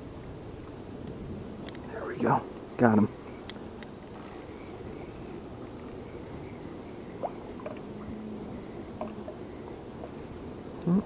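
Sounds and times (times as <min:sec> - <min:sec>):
fishing reel ticking: 0:03.2 - 0:06.3.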